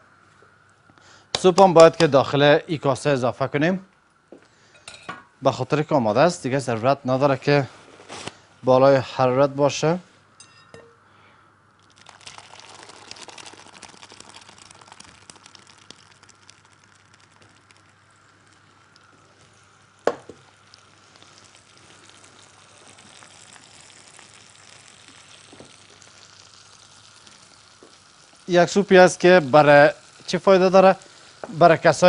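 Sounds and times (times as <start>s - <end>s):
food sizzling in a frying pan: 11.9s - 32.0s.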